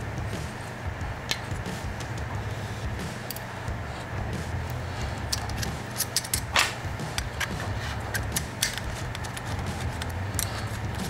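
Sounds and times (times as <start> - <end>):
metal tool clicks and taps: 5.3 - 10.5
metal clink and rattle: 5.3 - 10.8.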